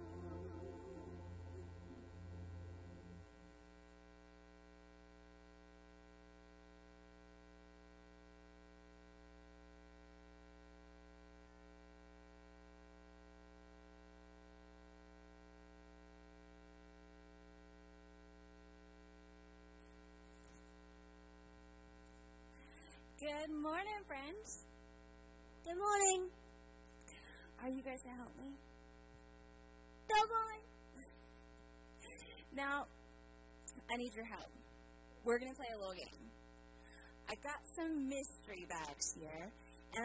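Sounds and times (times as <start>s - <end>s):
music with sung note: 0.0s - 3.3s
electrical hum and buzz: 0.0s - 40.0s.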